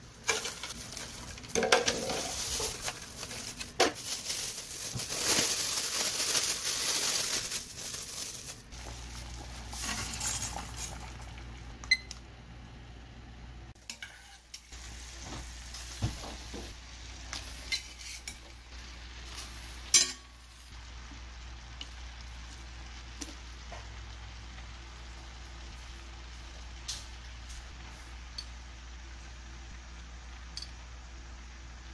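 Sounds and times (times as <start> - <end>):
pasta sizzling in a pan: 0.0 - 11.6, 13.7 - 31.9
plastic bag crinkling: 0.3 - 9.8
metal utensils clinking on a pan: 19.9 - 20.4.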